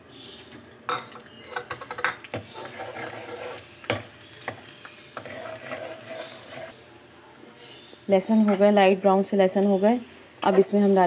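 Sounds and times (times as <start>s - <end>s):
garlic sizzling in hot oil: 0.1s - 7.1s, 7.9s - 11.0s
ladle clinking and scraping pan: 0.9s - 6.8s.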